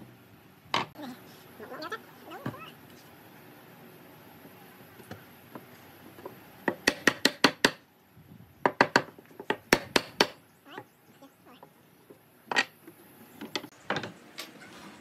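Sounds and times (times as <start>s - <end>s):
sharp wooden knocks: 8.7s - 10.4s.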